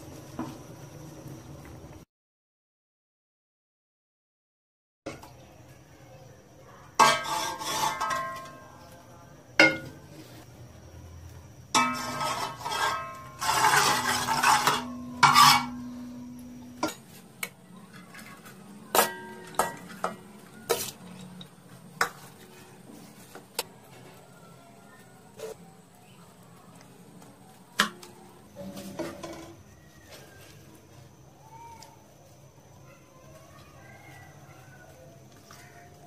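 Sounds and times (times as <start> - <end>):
metal pot clattering: 7.0 - 8.7, 9.6 - 10.1, 11.7 - 17.1, 18.9 - 22.2
spoon scraping in a pot: 7.0 - 8.8, 11.7 - 17.2.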